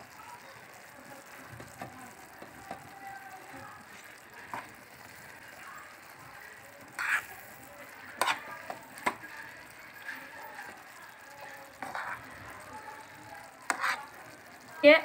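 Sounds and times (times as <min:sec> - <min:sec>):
noodles sizzling: 0:00.0 - 0:15.0
spoon scraping a frying pan: 0:03.8 - 0:05.6, 0:06.4 - 0:14.3.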